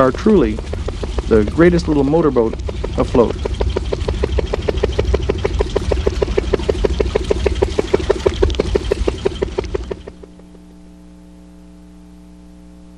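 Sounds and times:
small boat engine putting: 0:00.0 - 0:10.8
faint electrical hum: 0:10.1 - 0:12.9.

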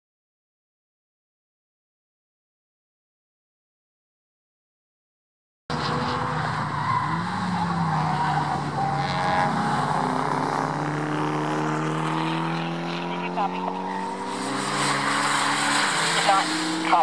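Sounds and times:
race car engines: 0:05.7 - 0:17.0.

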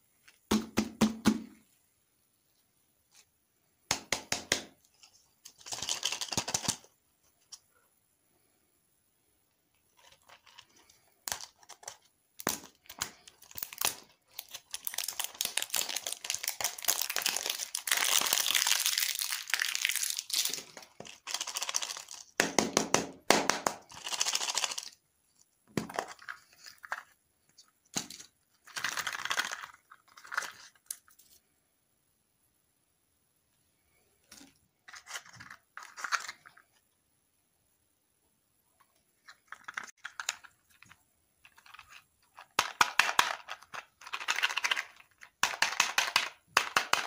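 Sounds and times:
plastic wrapper crinkling: 0:10.0 - 0:22.4, 0:23.8 - 0:25.0, 0:28.0 - 0:31.2.

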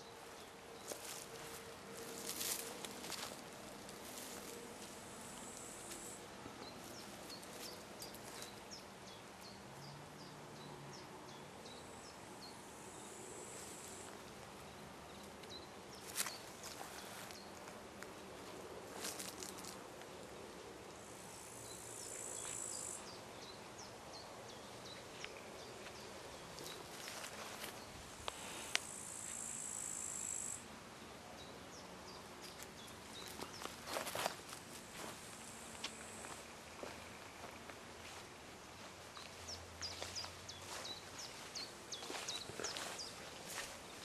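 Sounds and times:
insects chirring: 0:28.4 - 0:30.6.

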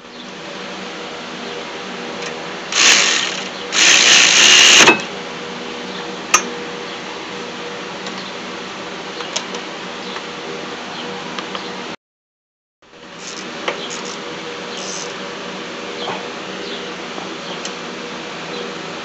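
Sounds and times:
steady background hum: 0:00.0 - 0:12.0, 0:12.9 - 0:19.0
loud harsh bursts: 0:02.7 - 0:05.0.

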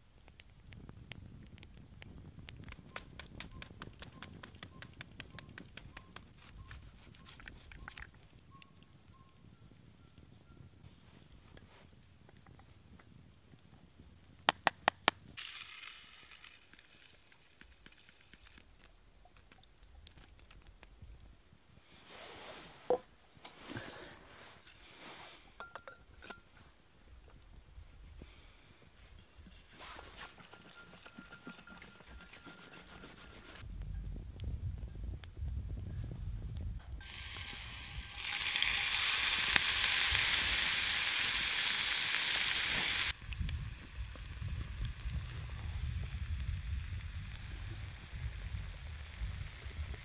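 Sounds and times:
burning wood rumble: 0:00.0 - 0:07.1, 0:15.2 - 0:21.2, 0:33.6 - 0:50.0
campfire crackling and popping: 0:00.0 - 0:09.0, 0:11.1 - 0:21.7, 0:36.4 - 0:50.0
soft hissing pouring: 0:15.4 - 0:18.7, 0:37.0 - 0:50.0
metal pot and bottle clinking: 0:25.6 - 0:26.6, 0:29.2 - 0:32.8.

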